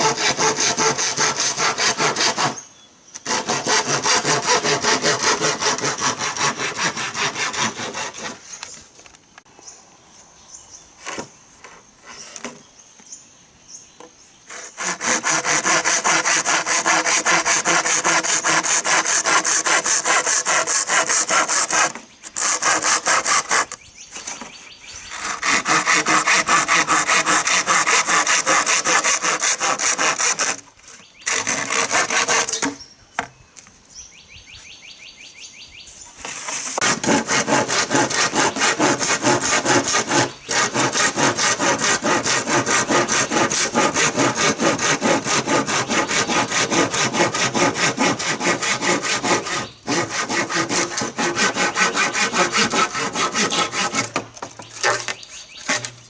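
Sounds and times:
hand saw cutting bamboo: 0.0s - 2.6s, 3.2s - 8.5s, 14.5s - 24.4s, 25.1s - 30.6s, 31.2s - 32.8s, 36.2s - 56.0s.

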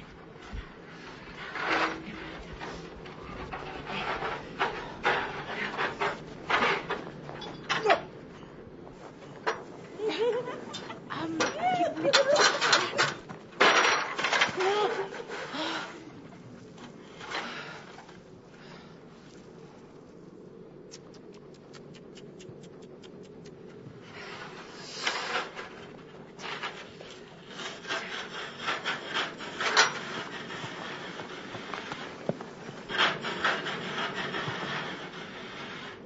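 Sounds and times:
metal ladder scraping over snow: 0.0s - 19.8s, 24.1s - 36.0s.

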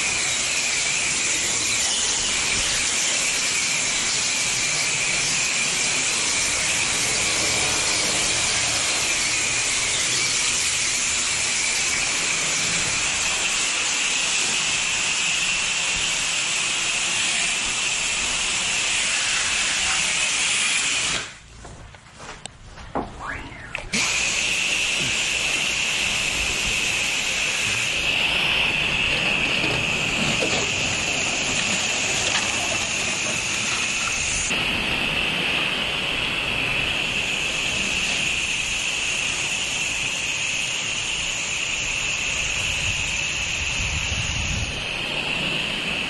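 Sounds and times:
pressure washer spraying: 0.0s - 21.4s, 23.9s - 46.0s.

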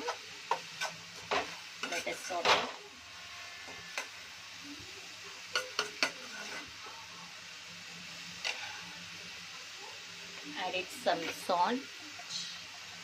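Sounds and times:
onions sizzling in oil: 0.0s - 13.0s
metal spoon clinking on pan: 0.5s - 2.6s, 5.5s - 6.6s.

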